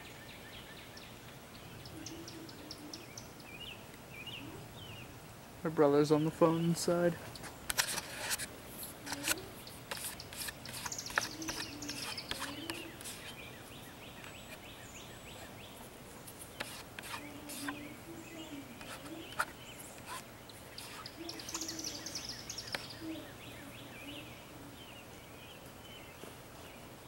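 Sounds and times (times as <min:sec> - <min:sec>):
songbirds singing: 0:00.0 - 0:27.0
high bird trill: 0:09.0 - 0:15.8, 0:16.5 - 0:24.6.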